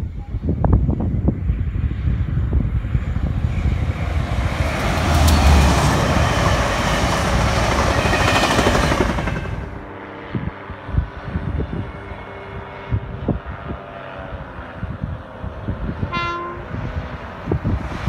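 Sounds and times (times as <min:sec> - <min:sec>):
locomotive rumble: 0:02.0 - 0:10.1.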